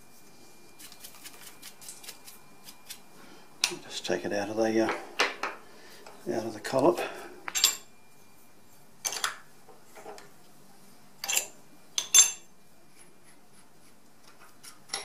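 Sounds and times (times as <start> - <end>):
metal tools clinking: 7.5 - 7.9, 11.2 - 12.4.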